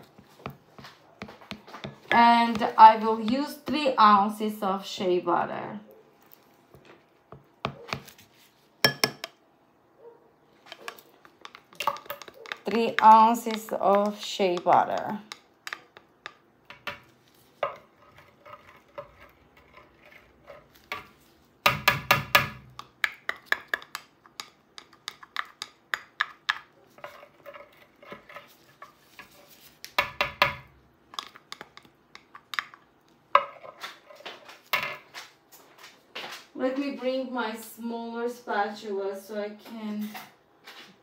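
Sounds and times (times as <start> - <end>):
spatula scraping glass jar: 17.6 - 21.2.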